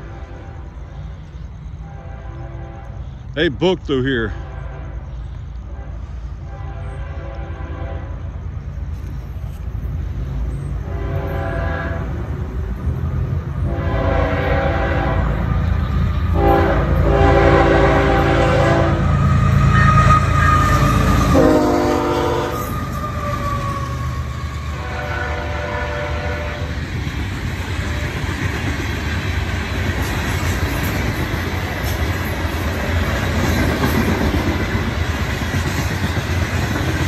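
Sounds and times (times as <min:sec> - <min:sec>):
train air horn blasts: 0:00.0 - 0:01.1, 0:01.7 - 0:03.4, 0:04.1 - 0:08.5, 0:10.8 - 0:12.2, 0:13.6 - 0:15.6, 0:16.3 - 0:23.4, 0:24.7 - 0:26.8
locomotive engine and wheels rumbling: 0:00.0 - 0:37.0.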